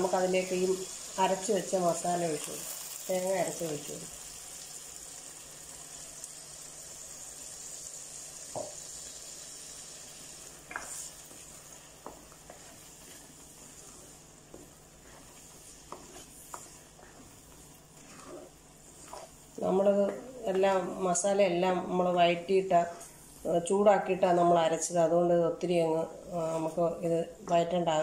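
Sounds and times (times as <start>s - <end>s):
paste sizzling in hot oil: 0.0s - 21.0s.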